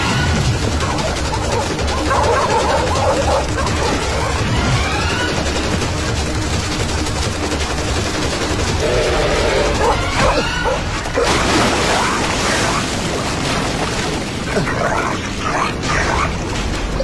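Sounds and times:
background music: 0.0s - 17.0s
dogs barking: 0.6s - 5.0s, 8.9s - 12.9s.

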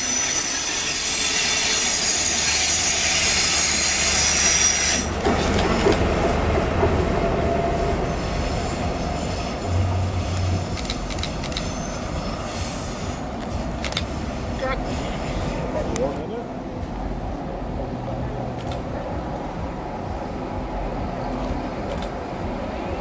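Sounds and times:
train wheels squealing: 0.0s - 5.9s, 7.4s - 15.7s
diesel engine drone: 1.4s - 23.0s.

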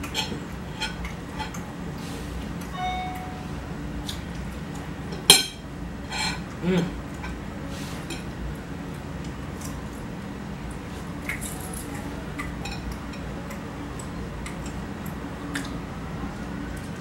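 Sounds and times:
steady low hum: 0.0s - 17.0s
fork scraping a plate: 6.1s - 6.4s.

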